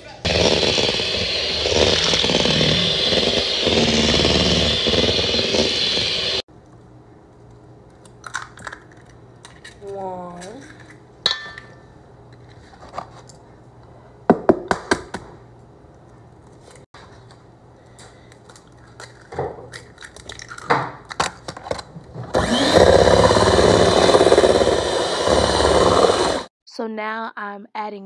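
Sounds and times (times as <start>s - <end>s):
electric mixer running: 0.2s - 6.5s, 22.4s - 26.5s.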